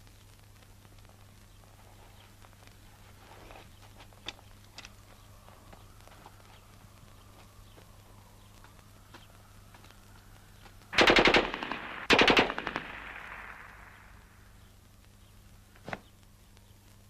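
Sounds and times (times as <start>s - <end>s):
submachine gun bursts: 11.0s - 13.6s.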